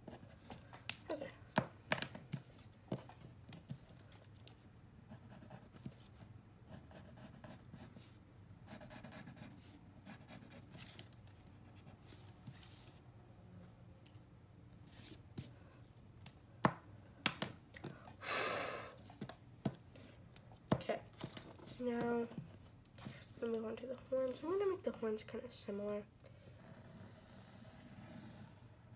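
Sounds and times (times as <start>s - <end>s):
pencil scratching on paper: 5.1s - 10.8s, 26.6s - 28.6s.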